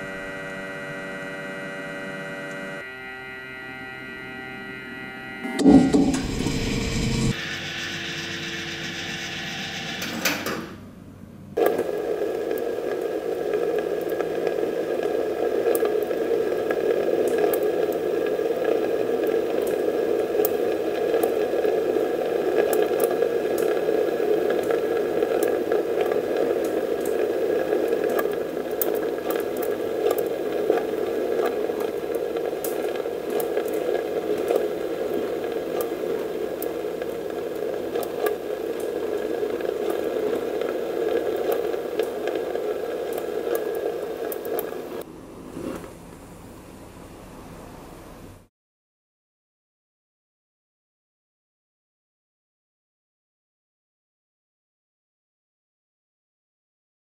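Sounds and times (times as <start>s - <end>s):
small crackles: 11.6s - 45.0s
fabric burning with rushing noise: 11.6s - 45.8s.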